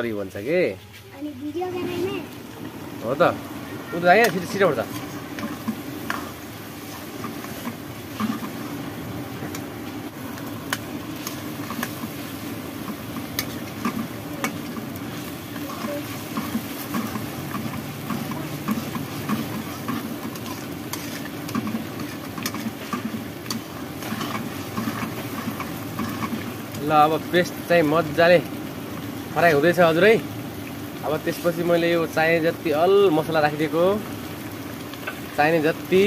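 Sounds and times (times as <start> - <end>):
paste sizzling in hot oil: 1.4 - 36.0
metal spoon scraping pan: 4.2 - 8.6, 10.7 - 26.6.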